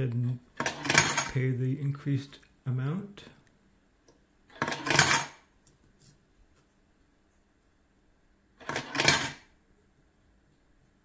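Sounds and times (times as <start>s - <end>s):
coin rattling through acceptor: 0.6s - 1.4s, 4.5s - 5.4s, 8.6s - 9.5s.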